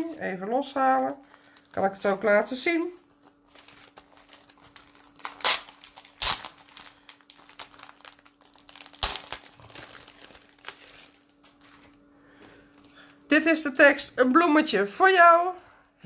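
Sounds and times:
plastic packet crinkling: 0:00.0 - 0:12.0
plastic crackles: 0:00.0 - 0:13.3.

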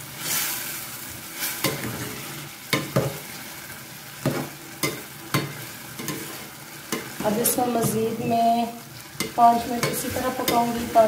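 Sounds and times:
simmering dal sizzling: 0:00.0 - 0:11.0
metal spatula scraping a pot: 0:09.0 - 0:11.0.

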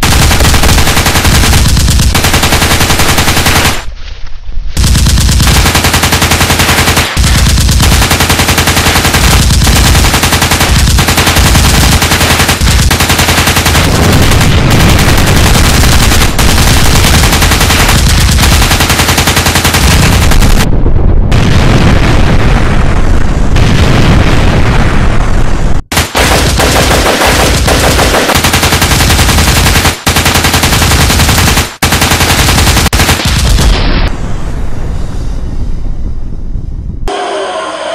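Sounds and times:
machine-gun fire: 0:00.0 - 0:03.9, 0:04.8 - 0:20.7, 0:25.9 - 0:34.1.

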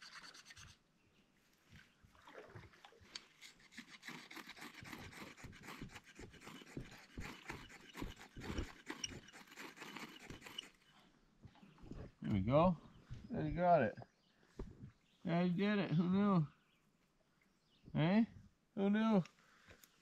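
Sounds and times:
rustling and scraping of sticks: 0:03.0 - 0:11.1.

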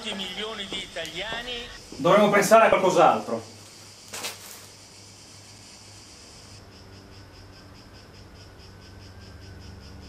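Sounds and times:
crickets chirping: 0:00.0 - 0:10.0
steady low hum: 0:04.7 - 0:10.0.

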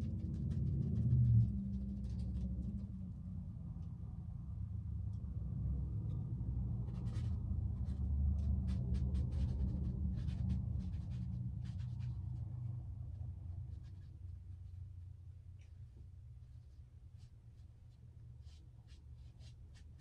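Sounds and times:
steady low hum: 0:00.0 - 0:20.0
paintbrush strokes on canvas: 0:16.4 - 0:20.0.

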